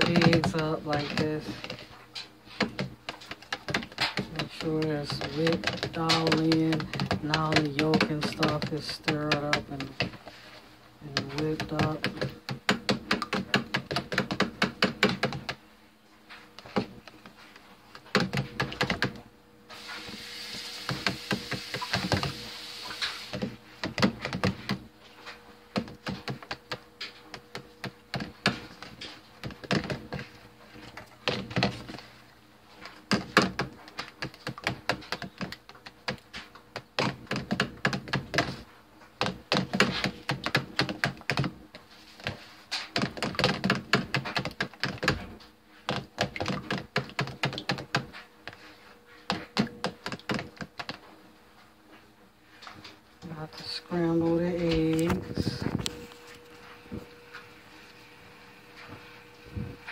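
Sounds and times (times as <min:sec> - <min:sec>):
metal spoon beating batter in plastic: 0:00.0 - 0:15.6, 0:16.2 - 0:19.2, 0:19.8 - 0:57.9
steady hiss: 0:19.7 - 0:23.4.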